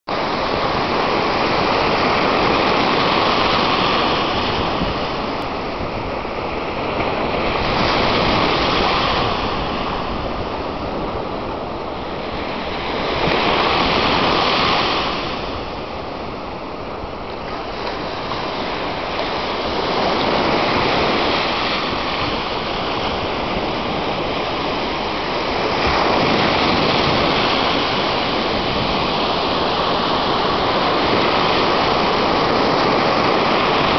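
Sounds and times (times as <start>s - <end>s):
small waves breaking on beach: 0.1s - 33.9s.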